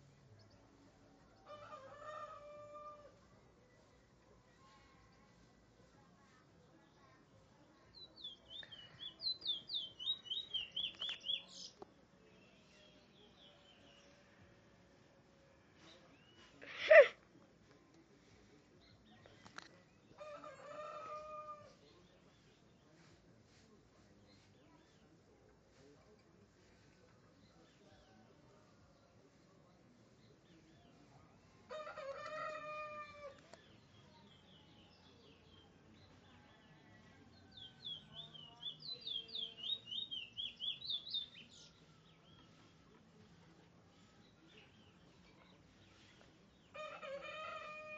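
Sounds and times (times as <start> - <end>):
small birds chirping: 3.6 - 14.2, 37.4 - 47.9.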